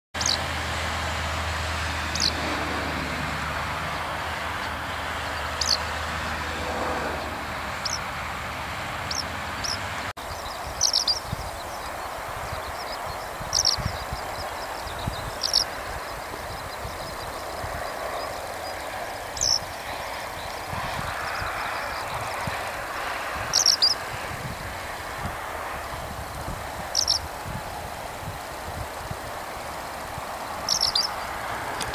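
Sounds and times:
skylark calls: 0.2s - 0.4s, 2.1s - 2.4s, 5.4s - 5.8s, 7.8s - 8.0s, 9.1s - 22.6s, 23.4s - 24.0s, 26.9s - 27.2s, 30.6s - 31.3s
soft bird twittering: 0.2s - 0.4s, 2.1s - 2.4s, 4.6s - 5.9s, 7.1s - 8.0s, 9.1s - 22.6s, 23.4s - 24.0s, 26.9s - 27.3s, 30.6s - 31.4s.

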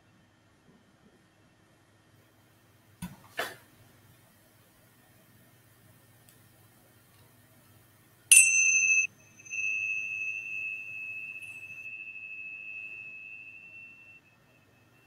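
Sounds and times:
tingsha cymbals ringing: 8.3s - 15.0s.

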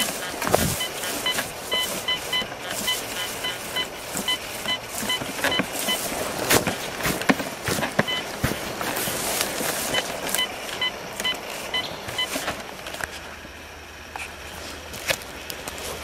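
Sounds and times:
metal detector beeping: 0.0s - 12.6s
coil brushing through grass: 0.0s - 13.2s.

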